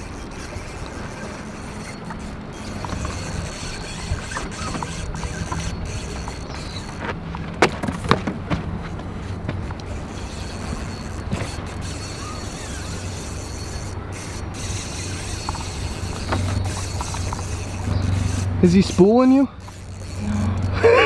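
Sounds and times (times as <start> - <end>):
fishing reel drag giving line: 0.0 - 7.0, 9.8 - 21.0
steady low hum: 0.0 - 21.0.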